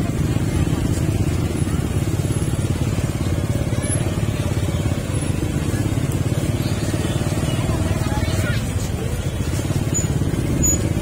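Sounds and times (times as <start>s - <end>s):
vehicle engine and road noise: 0.0s - 11.0s.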